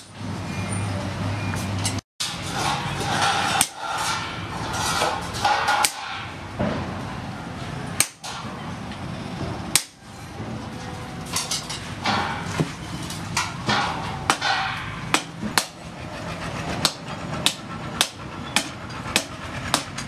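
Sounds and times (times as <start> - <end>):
hammer striking metal on anvil: 13.4 - 15.8.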